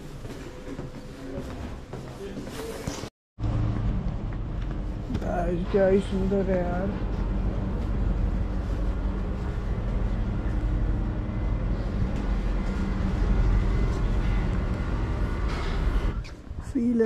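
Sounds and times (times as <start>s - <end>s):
large machine droning: 3.4s - 16.7s.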